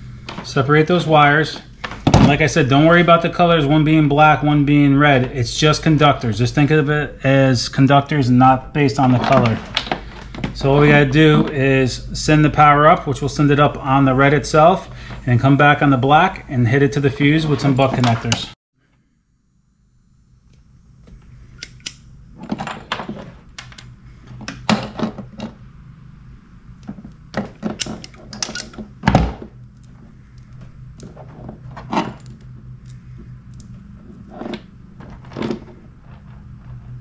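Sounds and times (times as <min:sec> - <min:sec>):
steady low hum: 0:00.0 - 0:37.0
wire strippers clicking and snapping: 0:26.8 - 0:28.9.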